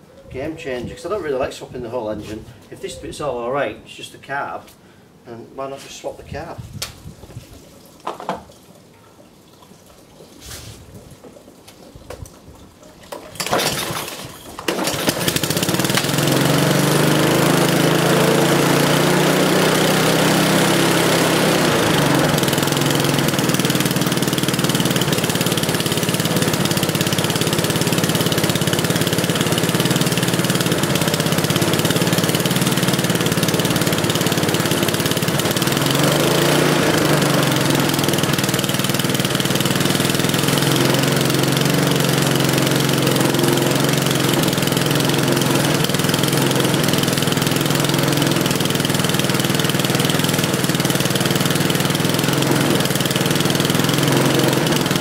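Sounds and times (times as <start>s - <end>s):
lawnmower engine running: 13.0s - 55.0s.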